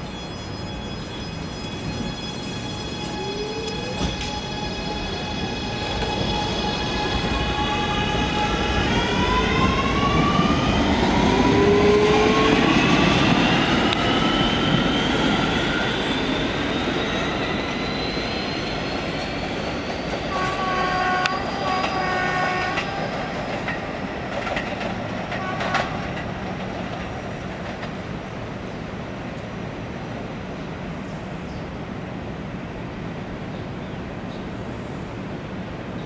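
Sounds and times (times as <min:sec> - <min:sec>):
train propulsion whine: 0:00.0 - 0:28.0
wheels rumbling on rail: 0:00.0 - 0:36.0.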